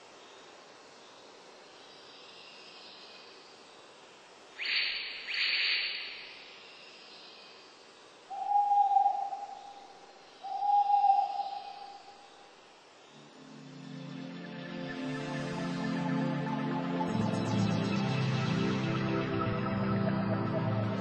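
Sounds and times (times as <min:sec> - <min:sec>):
faint hiss: 0:00.0 - 0:19.1
bird calling: 0:08.3 - 0:12.3.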